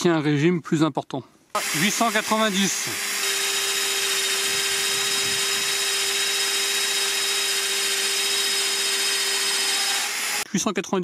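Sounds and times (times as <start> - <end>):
drill press drilling into steel: 1.6 - 10.5.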